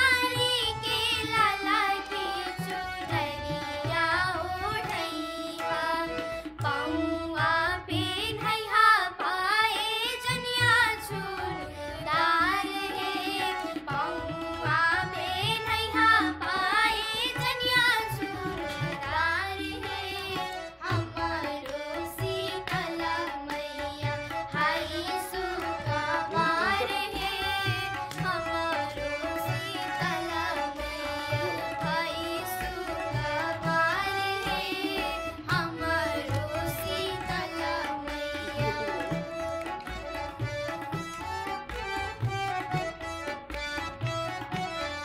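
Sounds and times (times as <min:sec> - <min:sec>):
person singing: 0:33.4 - 0:39.1.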